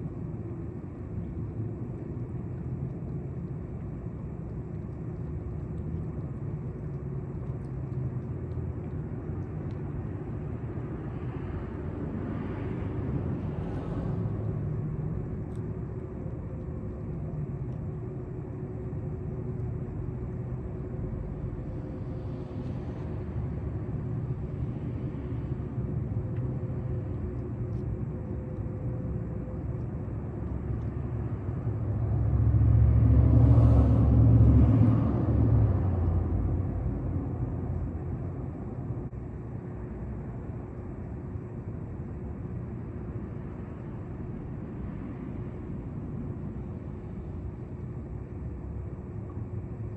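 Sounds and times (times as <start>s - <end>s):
faint steady hum: 0.0s - 49.9s
low rumble of city traffic: 0.0s - 49.9s.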